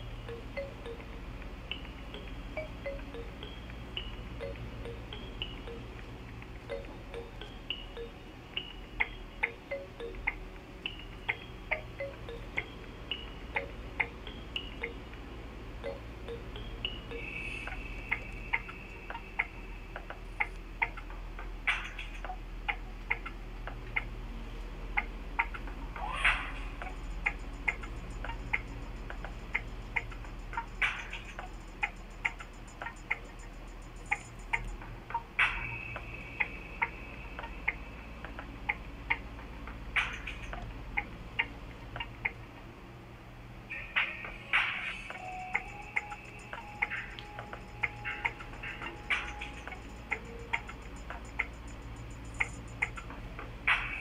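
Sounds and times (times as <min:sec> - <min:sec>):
low steady hum: 0:00.0 - 0:54.0
light sharp ticks: 0:17.1 - 0:42.7, 0:44.0 - 0:54.0
sharp clicks: 0:25.0 - 0:42.4.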